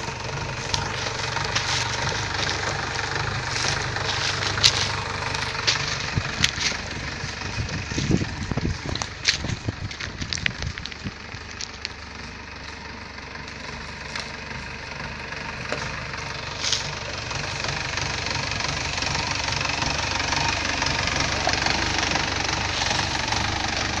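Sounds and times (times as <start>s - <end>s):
sharp crackles: 0.0s - 14.8s
jeep engine idling: 0.0s - 24.0s.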